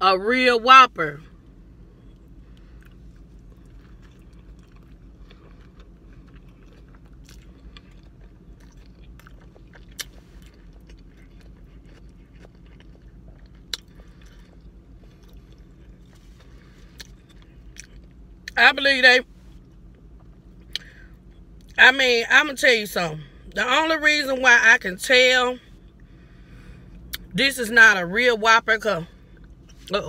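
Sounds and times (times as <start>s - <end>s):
low steady hum: 0.0s - 30.0s
person chewing with mouth closed: 2.0s - 18.6s.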